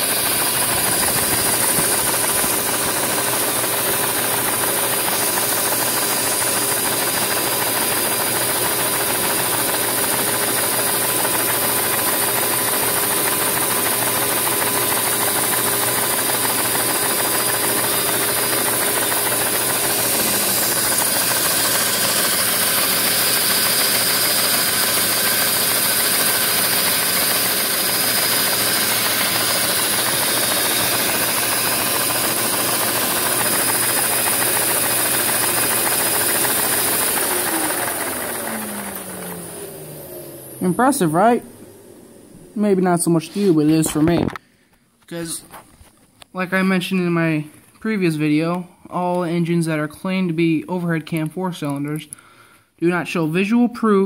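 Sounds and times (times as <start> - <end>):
plastic engine knocking and rattling: 0.0 - 39.2
vacuum cleaner hiss and whine: 0.0 - 44.4.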